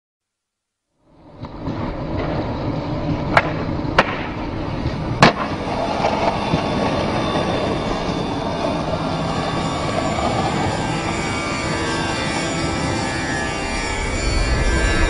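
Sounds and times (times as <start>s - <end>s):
skateboard wheels rolling on concrete: 1.1s - 15.0s
skateboard clacks: 1.3s - 7.7s
skateboard landing smack: 3.3s - 4.4s, 5.2s - 5.5s.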